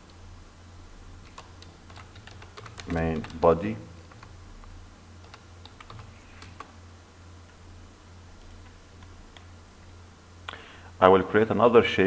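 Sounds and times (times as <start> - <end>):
low steady hum: 0.0 - 12.0
computer keys clicking: 1.2 - 4.4, 5.2 - 6.8, 8.4 - 9.5.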